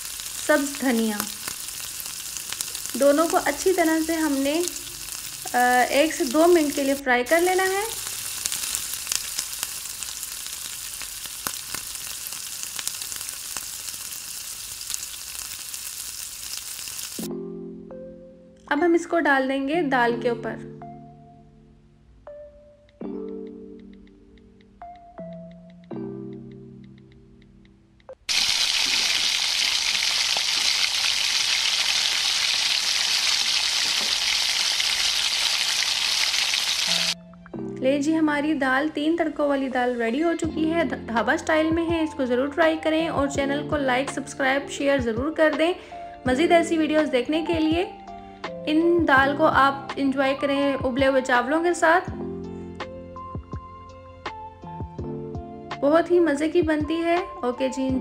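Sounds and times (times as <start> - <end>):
spices sizzling in hot oil: 0.0 - 17.3, 28.3 - 37.2.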